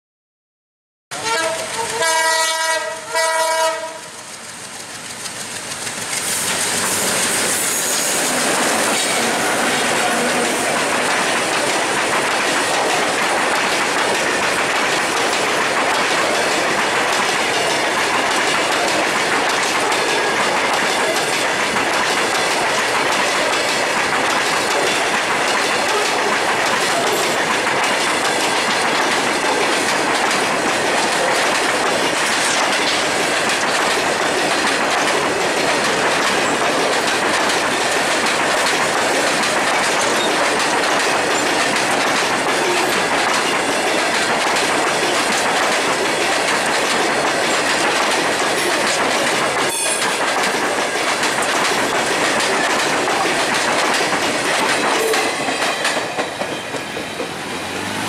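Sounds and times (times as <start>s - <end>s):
locomotive horn blasts: 1.1s - 4.1s
freight train passing: 1.1s - 58.0s
wheels clacking over rail joints: 1.2s - 58.0s.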